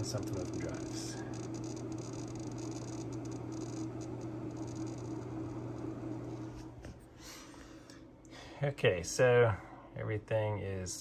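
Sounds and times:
drive heads seeking patter: 0.0s - 6.0s
hard drives humming: 0.0s - 8.5s
cooling fans whirring: 0.0s - 11.0s.

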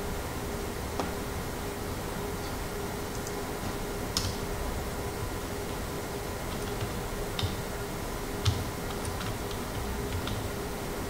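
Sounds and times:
steady hum and hiss: 0.0s - 11.0s
computer keyboard keystrokes: 6.5s - 7.6s, 8.4s - 10.5s.

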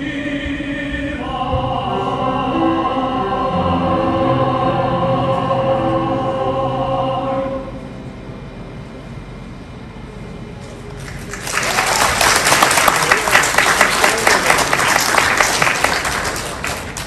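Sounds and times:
audience applauding: 11.0s - 17.0s.

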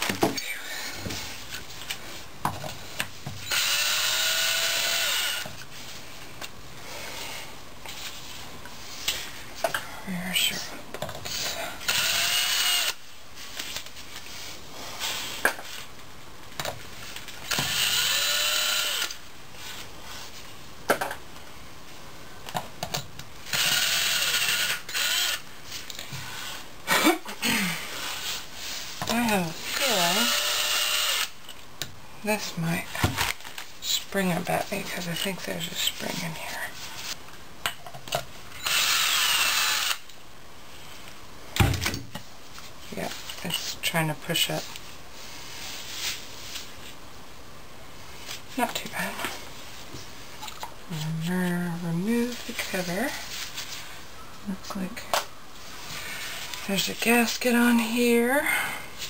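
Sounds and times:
cordless drill spinning bolts: 3.4s - 5.5s, 11.2s - 13.0s, 17.5s - 19.2s, 23.5s - 25.4s, 29.7s - 31.4s, 38.6s - 40.1s.

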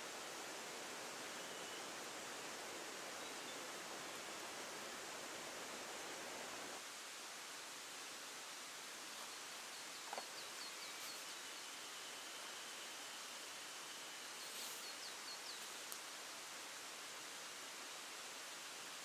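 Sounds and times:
steady outdoor hiss: 0.0s - 19.0s.

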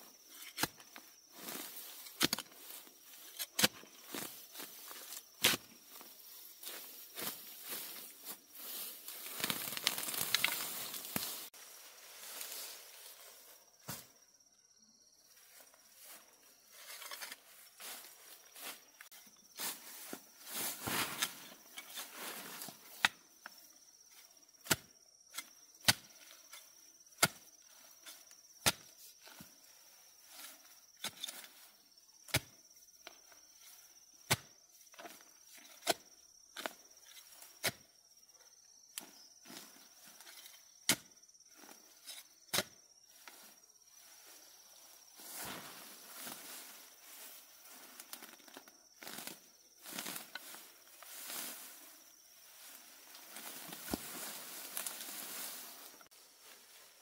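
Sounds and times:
faint insect drone: 0.0s - 57.0s
rustling: 5.9s - 11.5s.

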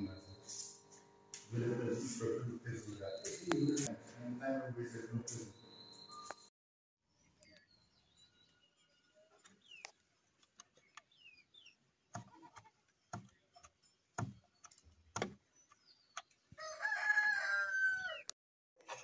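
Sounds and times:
rooster crowing: 16.6s - 18.3s.

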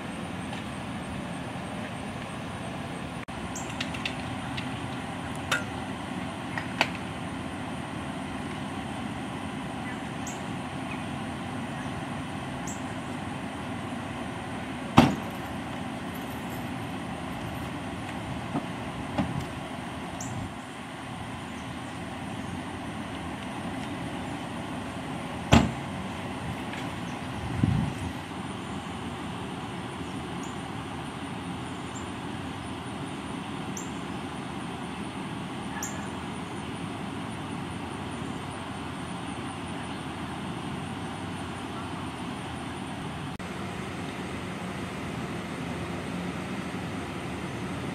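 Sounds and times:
outdoor vehicle hum: 0.0s - 47.9s
vehicle doors slamming: 14.9s - 15.4s, 25.4s - 25.9s
dull thump: 15.0s - 15.4s, 25.5s - 25.8s.

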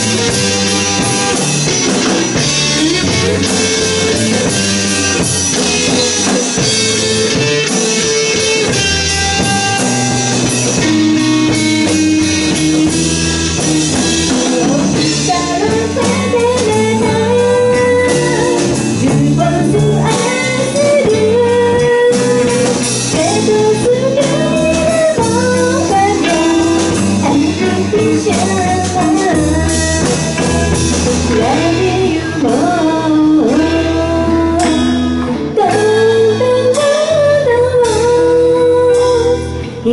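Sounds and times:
bass guitar: 0.0s - 39.9s
drum kit: 0.0s - 39.9s
electric guitar: 0.0s - 39.9s
woman singing: 2.3s - 7.4s, 13.8s - 39.9s.

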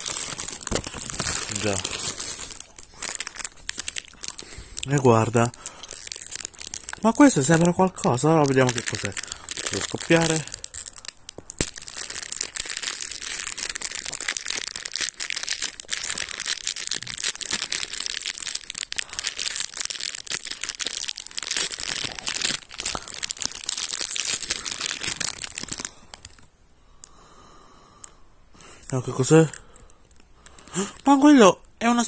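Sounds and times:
plastic bag crinkling: 0.0s - 26.5s.

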